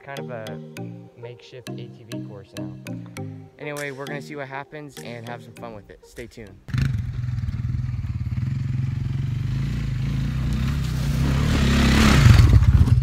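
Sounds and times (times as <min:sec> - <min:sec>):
quad bike engine running: 0:06.7 - 0:13.0.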